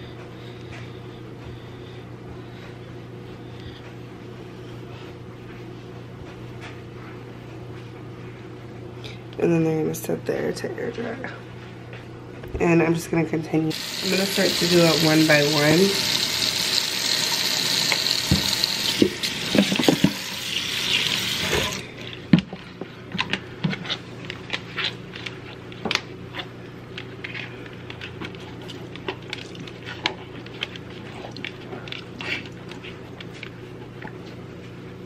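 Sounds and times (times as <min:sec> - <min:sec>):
sink tap running: 0:13.7 - 0:21.8.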